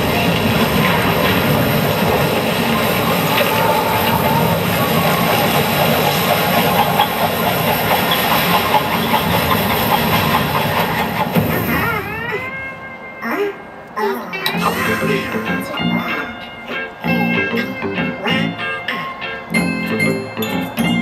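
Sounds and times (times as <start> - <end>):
loud rushing soundtrack on loudspeakers: 0.0 - 13.9.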